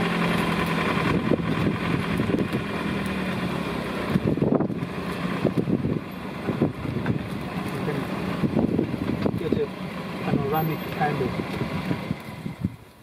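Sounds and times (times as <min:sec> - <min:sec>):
vehicle engine running: 0:00.0 - 0:13.0
wind on microphone: 0:08.4 - 0:09.4.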